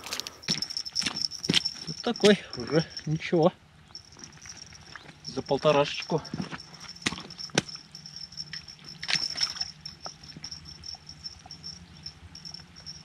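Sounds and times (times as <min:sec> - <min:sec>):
water splashing and sloshing: 0:06.8 - 0:09.8.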